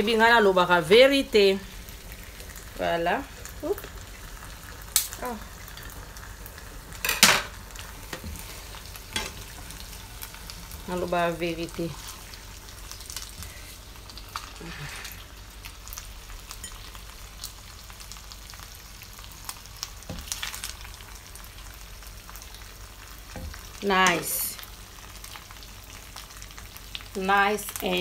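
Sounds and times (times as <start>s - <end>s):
pasta sizzling in frying pan: 0.0s - 28.0s
spoon scraping pan: 23.4s - 24.6s.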